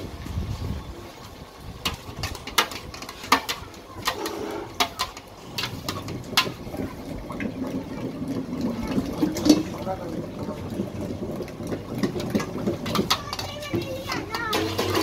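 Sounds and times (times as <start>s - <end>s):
metal bowl clinking on pots: 1.8s - 6.9s, 9.1s - 15.0s
wooden churner knocking in pot: 1.8s - 15.0s.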